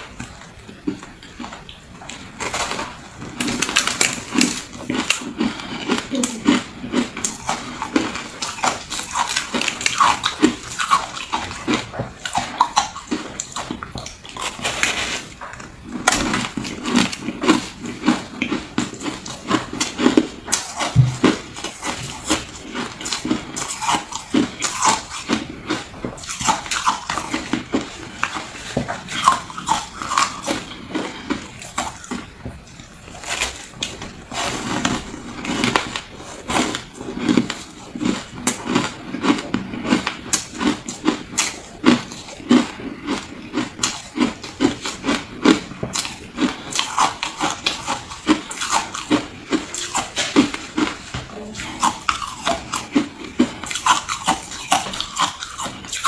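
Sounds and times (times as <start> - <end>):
ice being chewed: 0.0 - 56.0.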